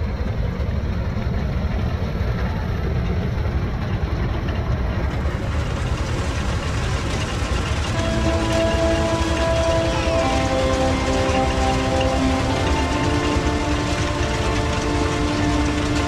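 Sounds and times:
thresher machine running: 5.1 - 16.0.

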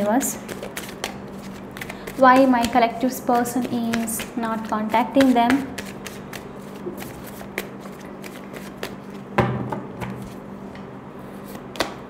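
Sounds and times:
cards being shuffled: 0.4 - 9.2.

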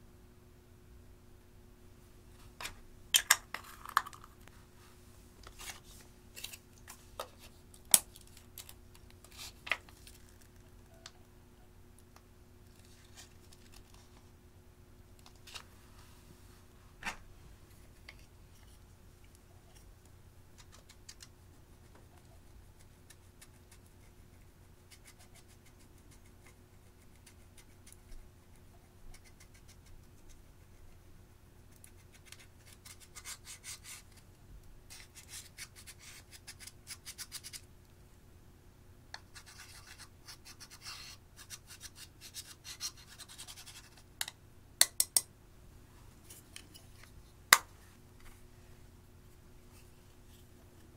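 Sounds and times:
gritty scratching of eyeshadow: 20.6 - 30.9, 31.8 - 34.2, 34.9 - 37.6, 39.2 - 44.1.

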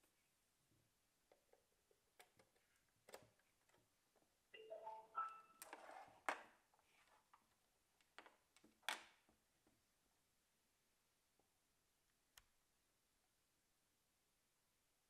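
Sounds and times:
four-note rising chime: 4.6 - 5.6.

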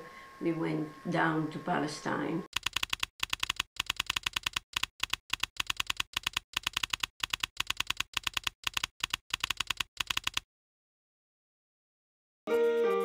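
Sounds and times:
keyboard key clicks: 2.6 - 10.4.

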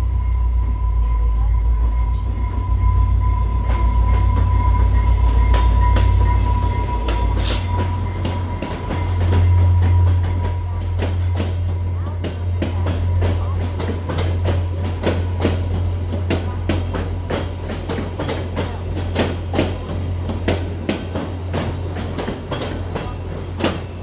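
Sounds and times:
steady low drone: 0.0 - 16.6
train wheels clunking over rail joints: 3.6 - 24.0.

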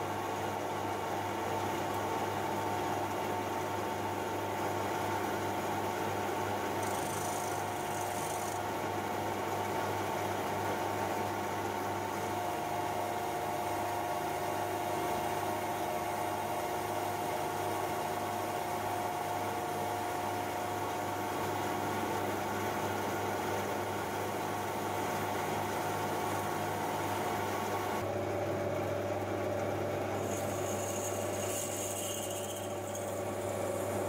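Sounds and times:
metal lathe humming and whining: 6.7 - 8.9, 30.1 - 34.0
cutting tool facing metal bar: 6.8 - 8.6.

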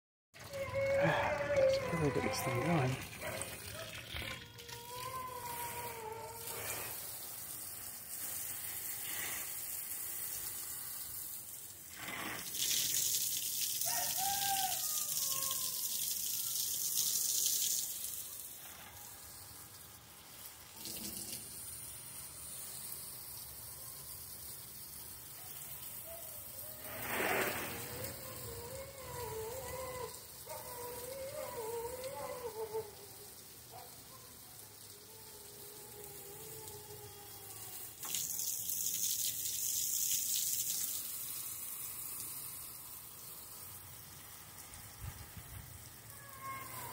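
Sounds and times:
dog whining: 0.4 - 6.8, 27.8 - 33.0
steady hiss: 24.5 - 28.6.

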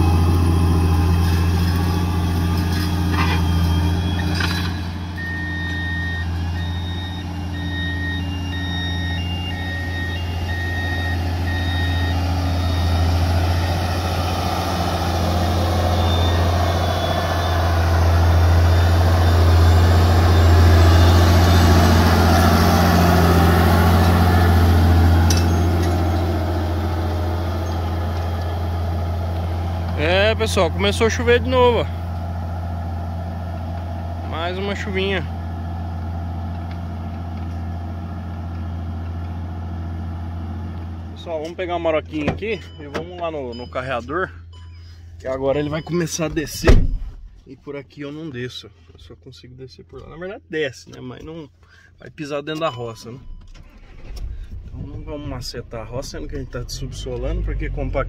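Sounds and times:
tractor diesel engine running: 0.0 - 49.2, 49.9 - 58.0
short electronic beeps: 3.1 - 14.3, 15.0 - 23.3, 42.5 - 46.6.

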